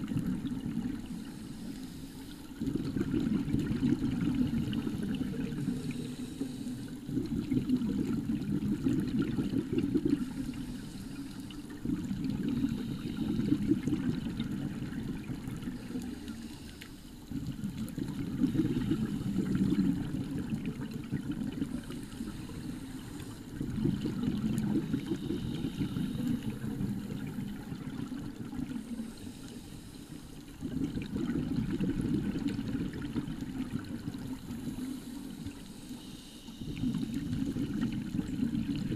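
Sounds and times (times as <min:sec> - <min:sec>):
underwater regulator bubbles: 0:00.0 - 0:29.8, 0:30.4 - 0:35.8, 0:36.6 - 0:38.9.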